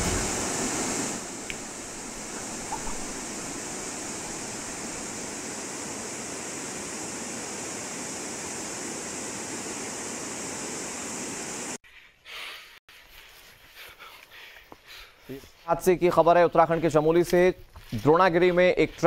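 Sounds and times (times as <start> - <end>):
steady rushing noise: 0.0 - 11.8.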